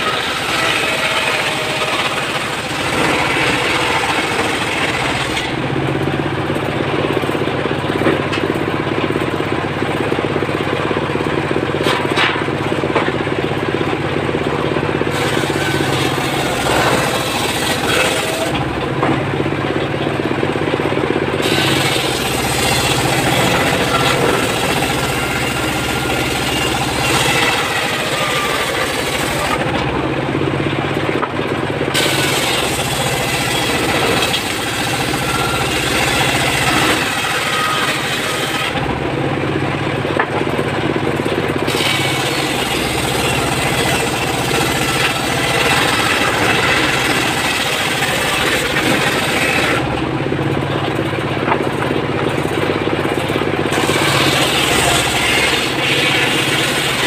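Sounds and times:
saw blade cutting wood: 0.0s - 5.8s, 15.0s - 19.3s, 21.4s - 30.0s, 31.9s - 39.0s, 41.6s - 50.1s, 53.2s - 57.0s
stationary engine running: 0.0s - 57.0s.

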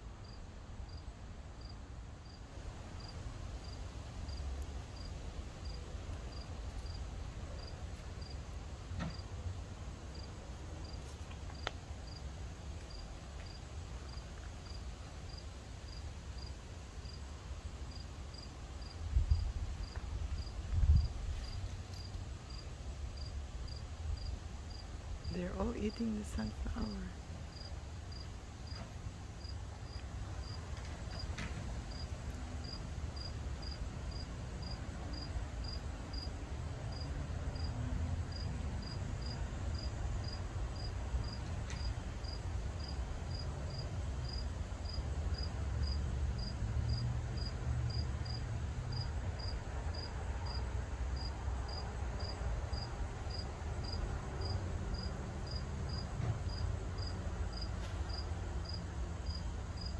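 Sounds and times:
cricket chirping: 0.2s - 1.0s, 1.6s - 2.4s, 3.0s - 4.4s, 5.0s - 7.0s, 7.6s - 8.4s, 10.1s - 11.0s, 11.6s - 12.2s, 15.3s - 17.2s, 17.9s - 24.8s, 27.5s - 28.8s, 29.4s - 31.3s, 31.9s - 36.3s, 36.9s - 37.7s, 38.3s - 50.6s, 51.2s - 59.9s
low steady rumble: 11.8s - 57.5s.

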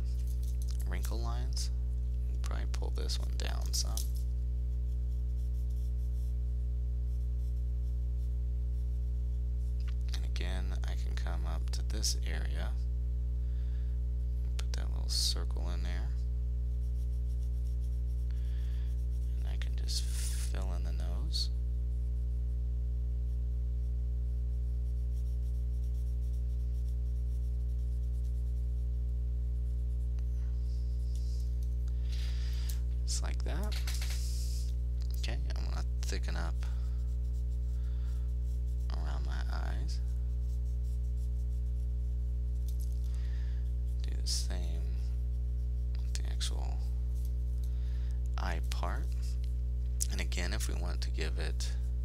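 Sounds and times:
steady low hum: 0.0s - 52.0s
pen scratching on paper: 16.8s - 18.3s, 24.5s - 29.0s, 37.0s - 42.6s.

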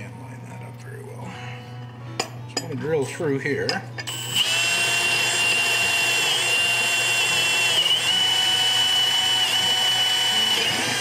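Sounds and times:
cordless drill boring through wood: 4.1s - 11.0s.

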